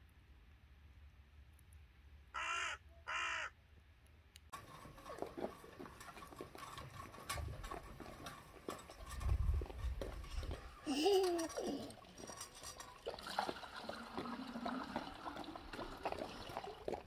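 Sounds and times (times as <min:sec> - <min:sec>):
crow cawing: 0:02.4 - 0:03.6
bucket scraping up a well: 0:04.5 - 0:17.0.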